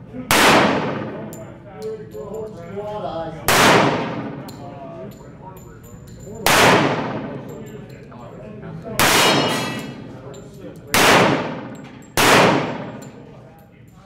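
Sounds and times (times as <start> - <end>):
handgun shots echoing: 0.3 - 1.4, 3.5 - 4.6, 6.4 - 7.6, 9.0 - 10.1, 10.9 - 13.3.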